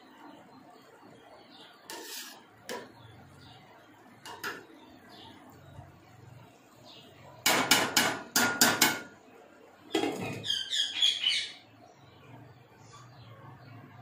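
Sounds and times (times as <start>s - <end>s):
metal spoon knocking on pot: 7.4s - 9.2s.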